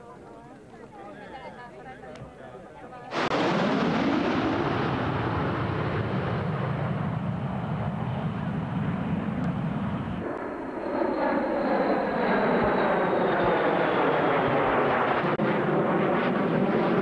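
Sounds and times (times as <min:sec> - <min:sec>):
jet roar: 0:03.1 - 0:17.0
high whine gliding down: 0:03.2 - 0:15.4.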